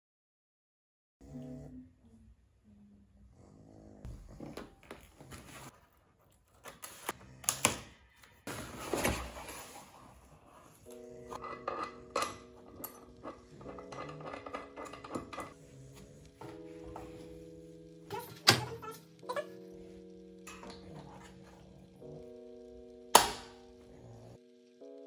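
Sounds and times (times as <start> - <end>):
soft background music: 8.5 - 25.0
metal tubes clattering: 11.3 - 15.6.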